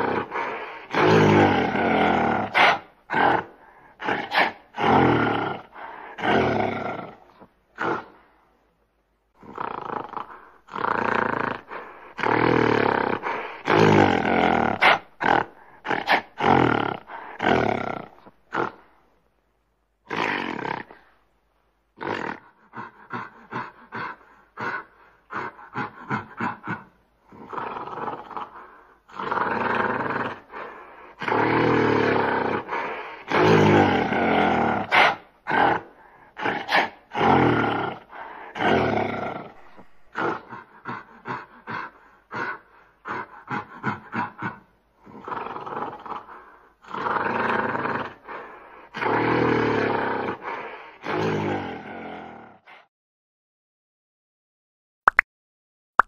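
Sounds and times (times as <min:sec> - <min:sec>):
gorilla grunting: 0:00.0 - 0:07.2, 0:31.2 - 0:52.6
gorilla roaring: 0:00.0 - 0:08.1, 0:09.4 - 0:18.8, 0:22.0 - 0:52.8.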